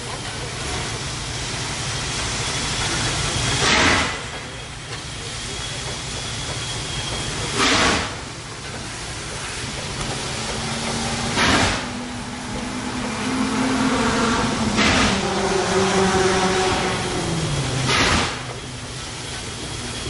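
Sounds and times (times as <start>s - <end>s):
steam locomotive exhaust chuffs: 0.0s - 20.0s
low rumble: 10.0s - 18.7s.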